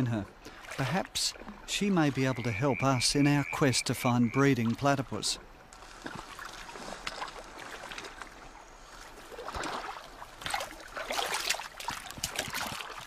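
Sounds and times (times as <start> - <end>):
water splashing and dripping: 0.0 - 13.0.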